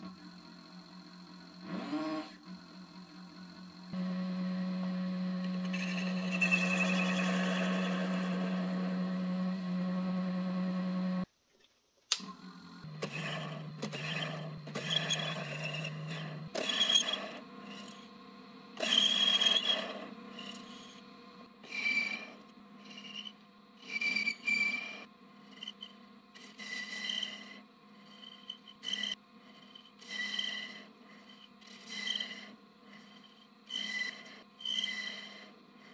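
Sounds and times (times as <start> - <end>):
lathe motor hum: 0.0 - 11.3, 12.2 - 35.9
high squeal: 5.5 - 8.7, 18.8 - 21.0, 21.6 - 25.9
tool scraping metal: 13.0 - 18.1, 18.8 - 35.9.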